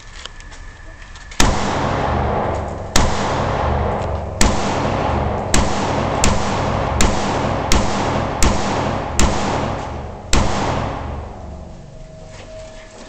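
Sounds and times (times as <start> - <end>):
loud continuous rumble: 0.0 - 13.0
rifle shots: 1.4 - 11.6.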